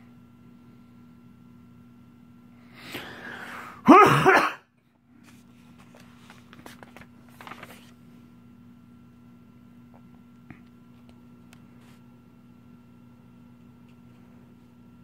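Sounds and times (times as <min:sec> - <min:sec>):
person taking a quick breath: 0:02.8 - 0:03.8
person coughing loudly: 0:03.8 - 0:04.7
hand tapping and rustling pages: 0:05.2 - 0:08.0.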